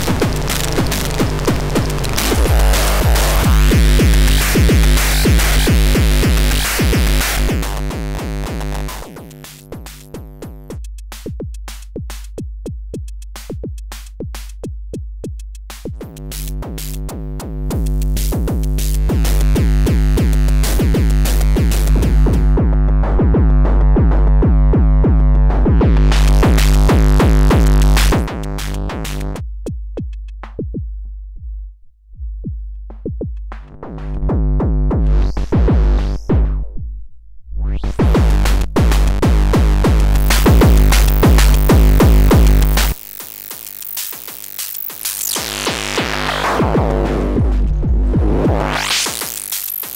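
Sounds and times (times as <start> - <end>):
distorted drum machine hits: 0.0 - 11.3, 15.8 - 29.4, 37.8 - 49.9.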